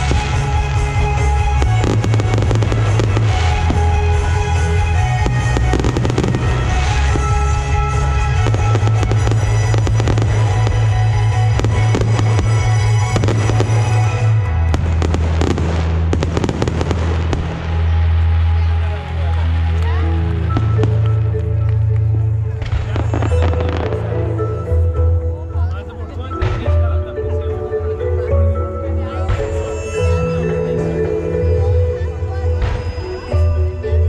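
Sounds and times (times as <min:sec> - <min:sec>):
loud music with heavy bass: 0:00.0 - 0:17.8
fireworks bursting and crackling: 0:00.0 - 0:24.4.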